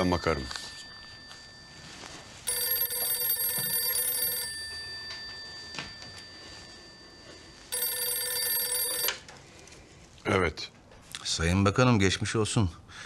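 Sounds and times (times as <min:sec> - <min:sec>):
telephone ringing: 0:00.0 - 0:09.4.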